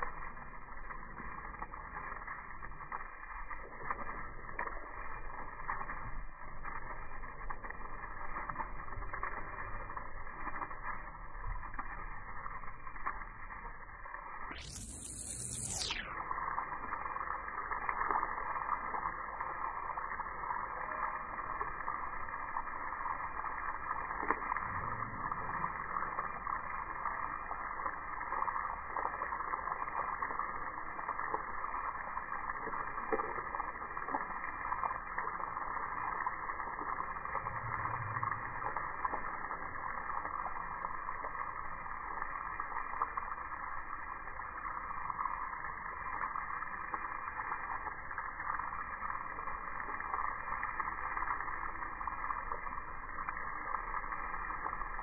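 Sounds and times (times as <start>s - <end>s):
hose water spray hissing: 6.6s - 21.5s.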